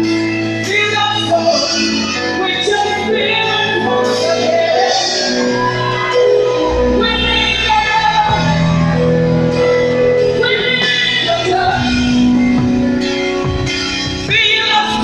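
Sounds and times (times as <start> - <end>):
instrumental backing: 0.0 - 15.0
gospel choir singing: 3.2 - 11.9.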